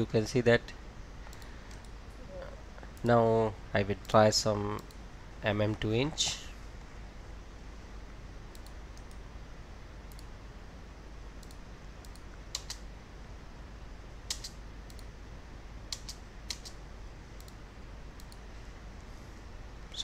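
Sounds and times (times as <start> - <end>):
low steady hum: 0.0 - 20.0
mouse and keyboard clicks: 11.4 - 12.8, 14.3 - 15.1, 15.9 - 16.8.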